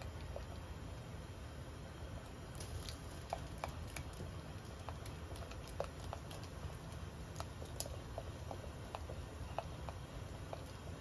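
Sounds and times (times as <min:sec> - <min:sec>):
sauce boiling in a saucepan: 0:00.0 - 0:11.0
steady low hum: 0:00.0 - 0:11.0.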